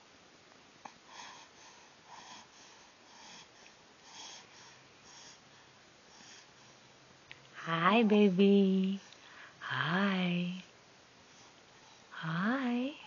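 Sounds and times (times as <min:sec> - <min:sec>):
soft breathing: 0:00.8 - 0:07.1, 0:09.0 - 0:09.7, 0:11.2 - 0:12.2.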